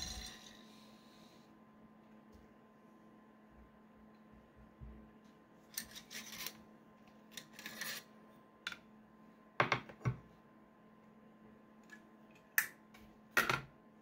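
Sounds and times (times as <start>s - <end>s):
rifle action scraping and sliding: 7.4s - 8.1s.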